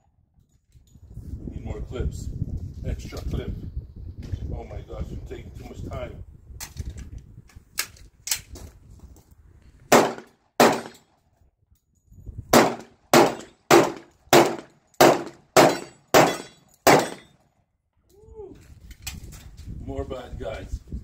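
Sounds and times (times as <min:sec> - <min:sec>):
pistol shots: 0:09.9 - 0:11.0, 0:12.5 - 0:17.4.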